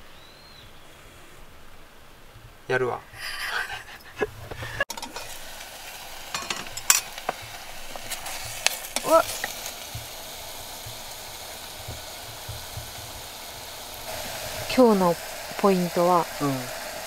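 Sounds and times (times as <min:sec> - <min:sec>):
steam hissing and sizzling: 0:00.0 - 0:02.3, 0:03.1 - 0:17.0
utensil scraping metal pot: 0:04.0 - 0:17.0.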